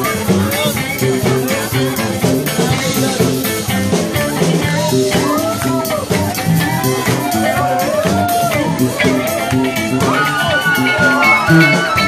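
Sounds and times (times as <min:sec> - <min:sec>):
drum beat: 0:00.0 - 0:12.0
rock band playing: 0:00.0 - 0:12.0.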